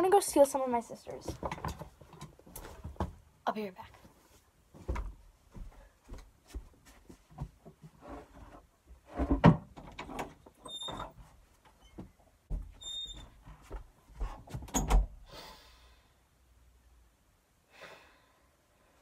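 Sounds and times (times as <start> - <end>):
footsteps: 3.9 - 8.0
wooden door opening: 14.6 - 15.2.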